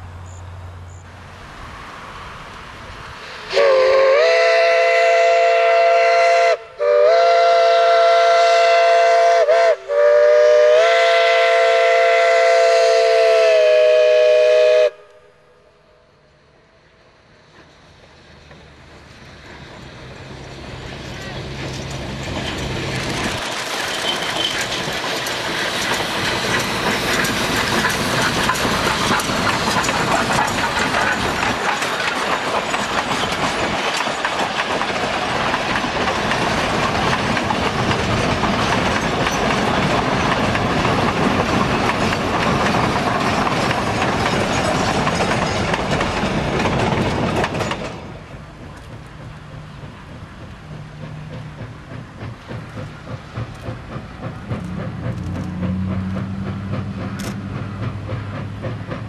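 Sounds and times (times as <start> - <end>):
distant train: 0.0 - 59.0
train wheels clattering over rail joints: 17.5 - 59.0.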